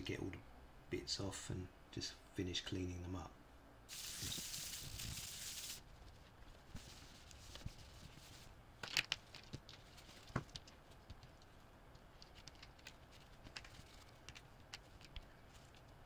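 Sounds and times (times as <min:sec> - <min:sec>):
paper rustling: 0:03.9 - 0:08.5
plastic parts clicking on mat: 0:08.8 - 0:16.0.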